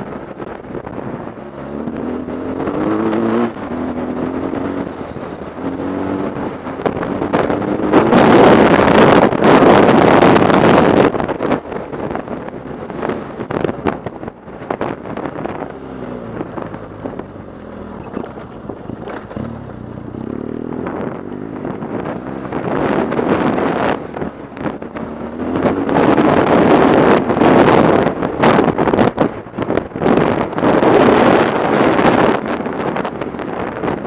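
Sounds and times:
wind buffeting microphone: 0.0 - 34.0
motorcycle engine revving: 0.3 - 34.0
knocks and clatters on gravel: 17.0 - 19.9.

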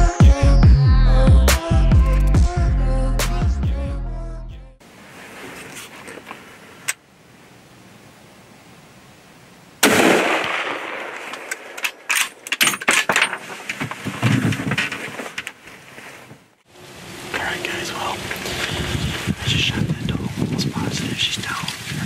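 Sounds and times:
rustling: 4.9 - 7.0, 11.2 - 16.6
loud gunshot: 9.8 - 11.3.

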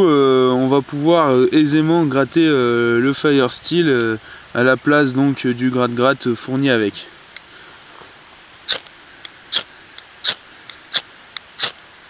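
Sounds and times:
faint clicks: 7.3 - 7.5
knife scraping fire steel: 9.5 - 11.8.

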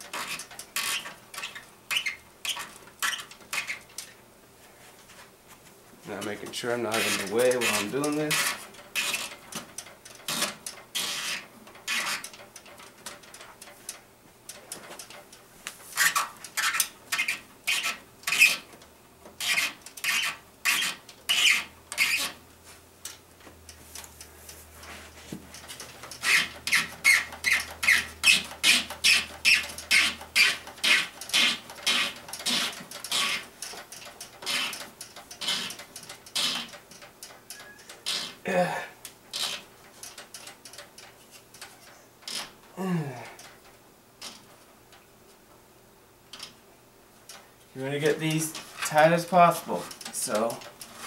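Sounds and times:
tubing scraping rubs: 6.0 - 9.4.

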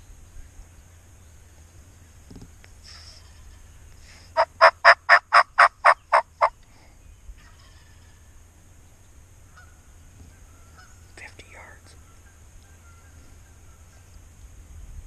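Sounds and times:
turkey call hen yelps: 4.4 - 6.5, 7.4 - 8.1.

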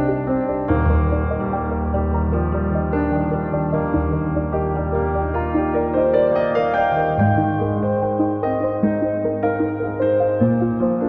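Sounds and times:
calm ambient music: 0.0 - 11.0.

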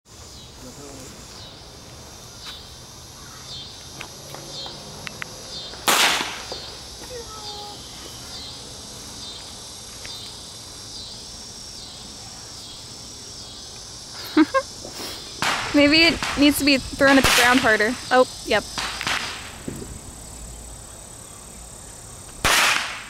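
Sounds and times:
insects chirping: 0.1 - 23.0
firework pop: 18.8 - 20.0.

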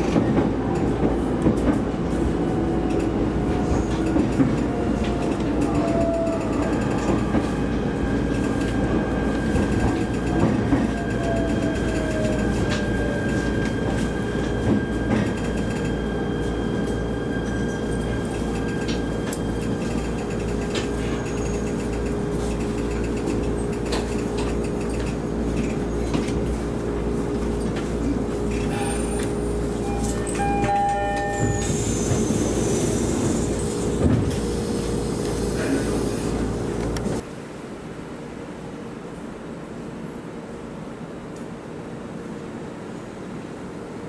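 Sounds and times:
train hum and rumble: 0.0 - 44.0
train motor whine: 28.5 - 34.4.

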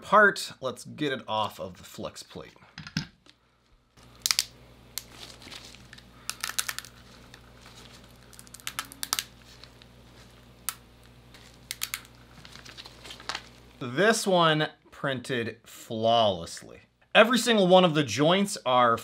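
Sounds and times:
low steady hum: 0.0 - 17.1
plastic clicks and crackles: 4.2 - 9.9, 11.4 - 13.5.

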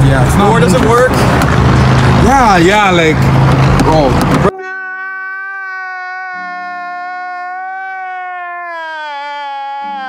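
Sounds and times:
man wailing: 4.4 - 10.0.

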